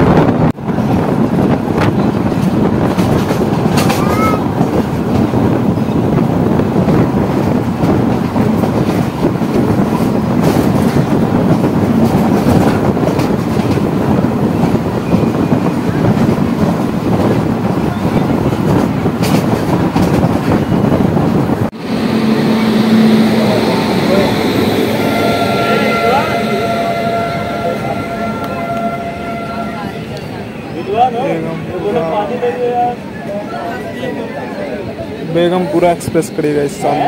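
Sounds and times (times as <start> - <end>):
train wheels rumbling on rails: 0.0 - 33.9
rail joint clicks: 1.8 - 30.4
rushing air: 19.4 - 30.1.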